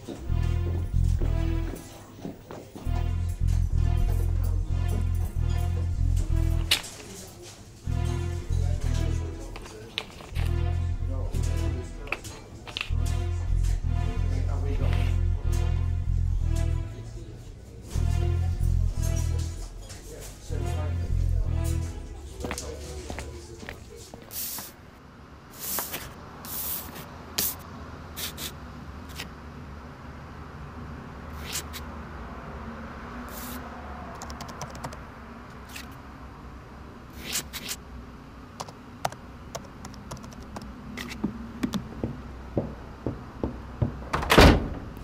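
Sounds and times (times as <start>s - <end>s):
laptop keyboard typing: 34.1s - 35.0s, 38.6s - 40.8s.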